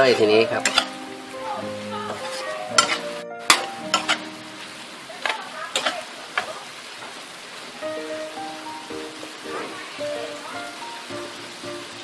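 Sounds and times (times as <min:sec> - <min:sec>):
metal spatula scraping a pan: 0:00.0 - 0:01.1, 0:02.1 - 0:04.7, 0:05.7 - 0:06.5
seafood sizzling in a wok: 0:00.0 - 0:12.0.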